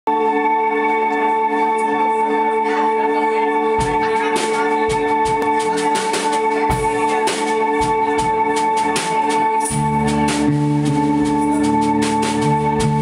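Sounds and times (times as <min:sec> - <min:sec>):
low bass notes: 0:00.1 - 0:13.0
sustained droning chords: 0:00.1 - 0:13.0
drum and cymbal hits: 0:03.8 - 0:13.0.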